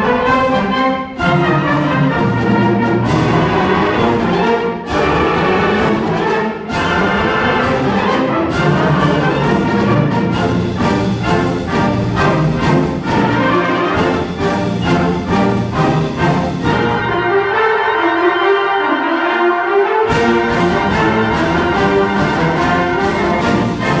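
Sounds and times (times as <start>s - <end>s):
concert band playing a march: 0.0s - 24.0s.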